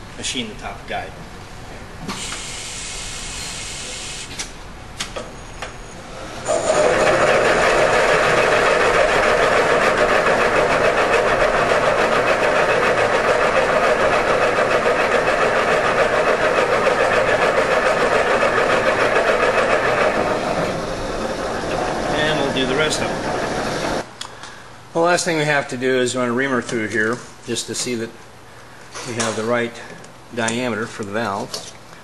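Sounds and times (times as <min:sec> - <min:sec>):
machine spindle cutting: 0:06.4 - 0:24.0.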